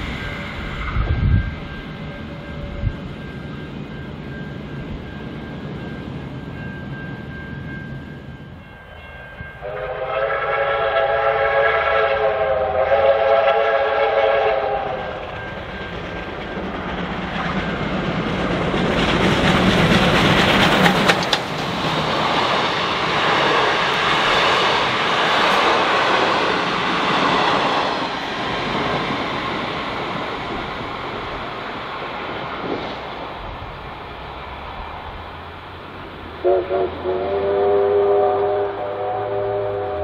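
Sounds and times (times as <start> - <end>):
train horn blast: 9.6 - 15.3, 36.4 - 40.0
train wheels clattering on rails: 14.0 - 36.4.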